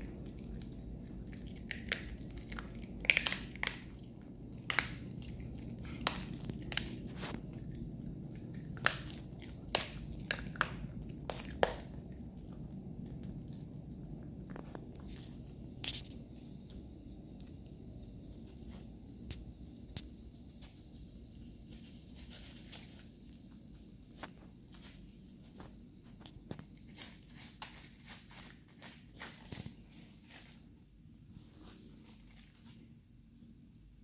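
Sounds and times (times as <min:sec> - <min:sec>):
dog crunching a bone: 0:00.0 - 0:17.6.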